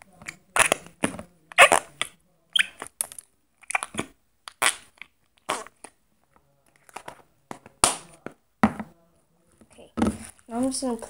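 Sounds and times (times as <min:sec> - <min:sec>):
hands squishing slime: 0:00.1 - 0:06.0.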